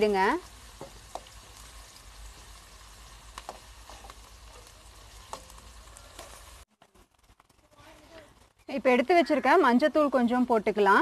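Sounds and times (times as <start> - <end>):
vegetables sizzling in hot oil: 0.0 - 11.0
metal spatula tapping and scraping pan: 0.7 - 1.6, 3.3 - 6.4.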